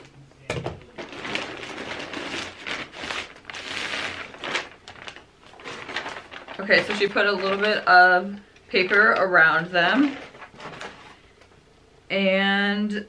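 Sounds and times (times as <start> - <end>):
plastic mailer crinkling: 0.8 - 11.2
packing paper rustling: 0.8 - 11.3.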